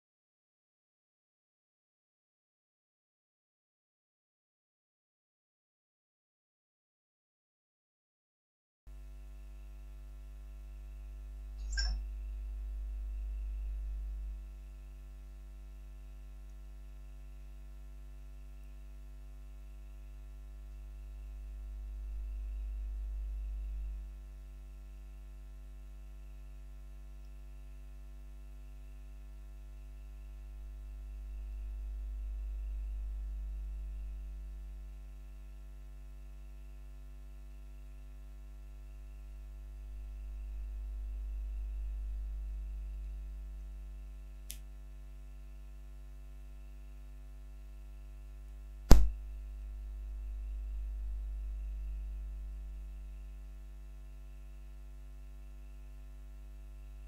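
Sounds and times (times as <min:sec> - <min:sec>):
electrical hum: 0:08.9 - 0:57.0
sharp click: 0:11.6 - 0:12.1, 0:48.9 - 0:49.2.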